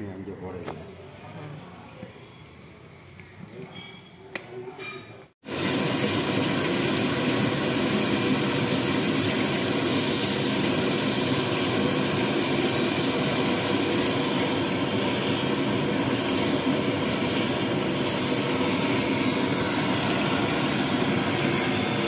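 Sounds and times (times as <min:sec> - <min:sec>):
batter frying in oil: 0:05.4 - 0:22.0
gas burner rushing: 0:05.4 - 0:22.0.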